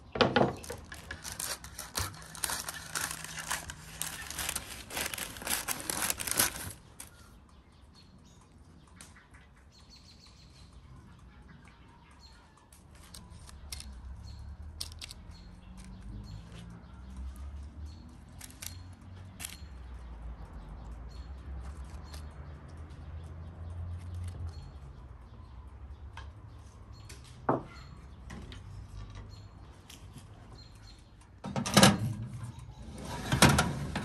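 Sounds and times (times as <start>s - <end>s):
faint handling sounds: 0.3s - 7.2s, 19.4s - 19.6s
oven door and pan clattering: 31.4s - 34.0s.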